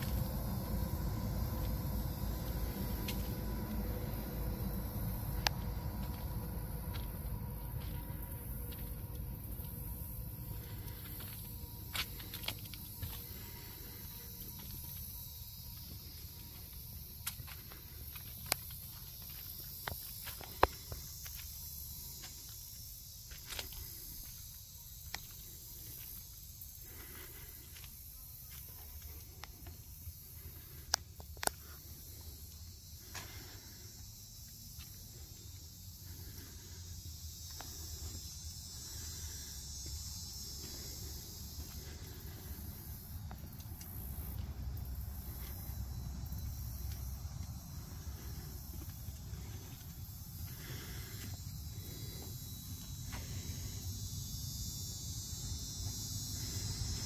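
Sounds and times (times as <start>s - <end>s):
low rumble: 0.0s - 17.2s
footsteps: 0.0s - 29.9s.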